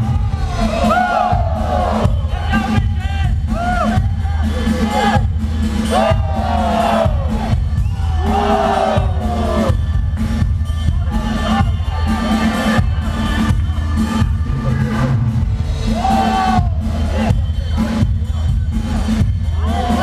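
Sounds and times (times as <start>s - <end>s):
crowd cheering and shouting: 0.0s - 20.0s
loud dance music with heavy bass: 0.0s - 20.0s.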